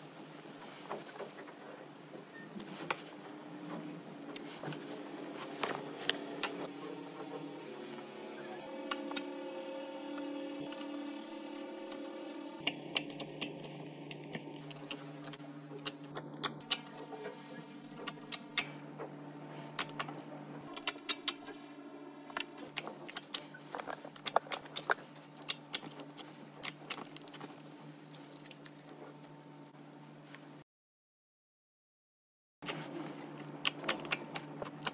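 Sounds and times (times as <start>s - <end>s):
faint steady hum: 0.0s - 30.6s
slime squishing with wet pops: 20.8s - 21.7s, 22.3s - 27.6s, 33.6s - 34.9s.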